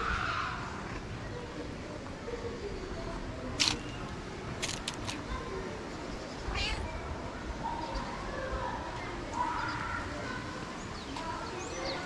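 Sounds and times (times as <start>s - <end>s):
cat meowing: 6.5s - 6.9s.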